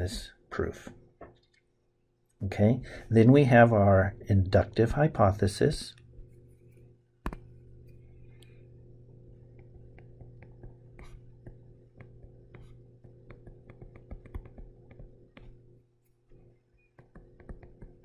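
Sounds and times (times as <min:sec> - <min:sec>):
steady low hum: 0:00.0 - 0:18.0
stylus tapping on touchscreen: 0:07.2 - 0:07.5, 0:09.5 - 0:15.6, 0:17.0 - 0:18.0.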